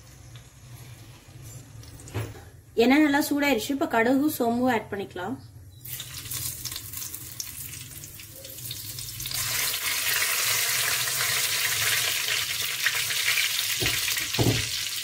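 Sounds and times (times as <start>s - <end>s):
seeds sizzling in hot oil: 5.8s - 15.0s.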